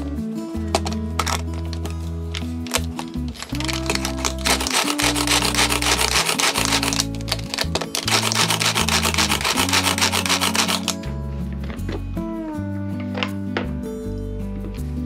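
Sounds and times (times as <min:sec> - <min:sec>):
food chopper blades whirring: 0:02.7 - 0:11.0.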